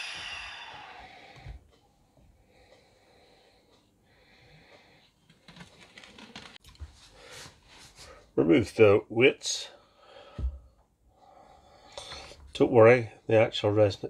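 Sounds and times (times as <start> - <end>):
air hissing through valve: 0.0 - 1.6.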